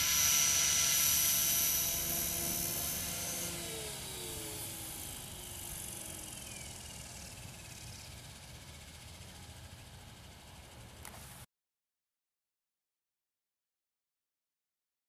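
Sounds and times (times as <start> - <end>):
helicopter rotor spooling down: 0.0 - 11.5
high motor whine: 0.0 - 11.5.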